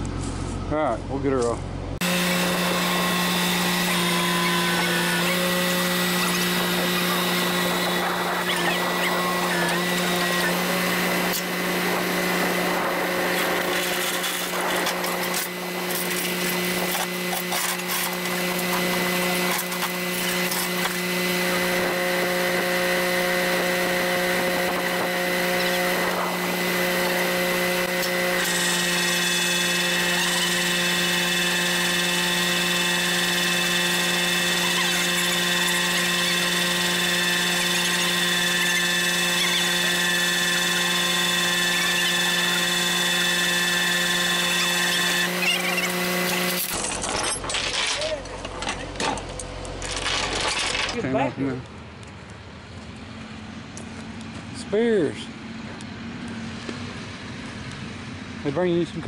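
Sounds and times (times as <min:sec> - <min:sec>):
higher whine: 0:00.0 - 0:51.0
winch humming and whining: 0:02.0 - 0:47.5.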